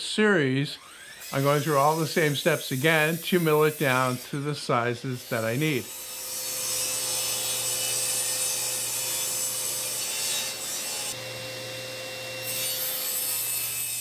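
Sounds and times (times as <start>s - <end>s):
table saw cutting wood: 0.7s - 14.0s
saw motor humming: 0.8s - 14.0s.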